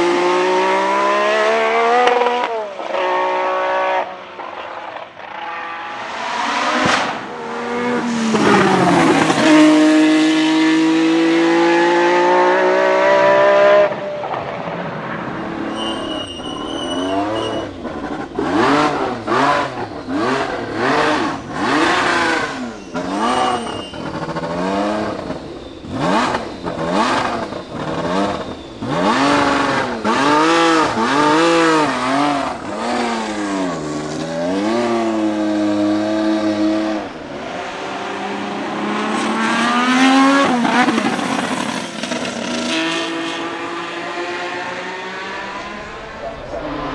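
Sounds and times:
racing car engine revving: 0.0s - 4.5s, 5.2s - 46.9s
high whistle: 15.6s - 31.9s.

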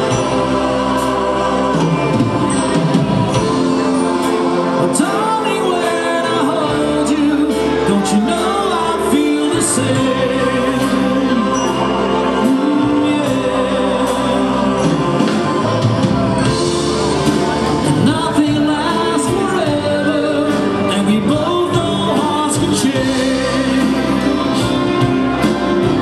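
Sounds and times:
rock band and wind band playing: 0.0s - 26.0s
man singing: 3.6s - 15.9s, 17.8s - 26.0s.

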